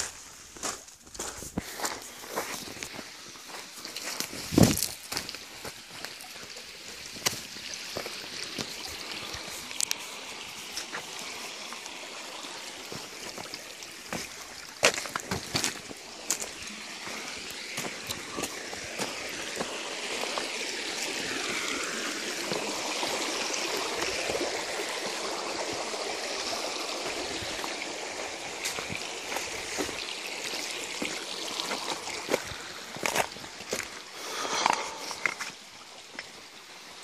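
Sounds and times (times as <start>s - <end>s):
footsteps on rocks and gravel: 0.0s - 6.4s, 7.2s - 11.1s, 12.9s - 19.8s, 28.6s - 35.6s
stream trickling over stones: 0.0s - 37.0s.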